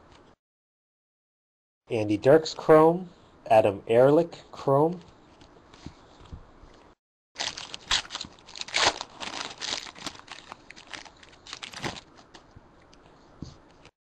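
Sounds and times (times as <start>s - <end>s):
foil wrapper tearing and crinkling: 7.4s - 12.1s.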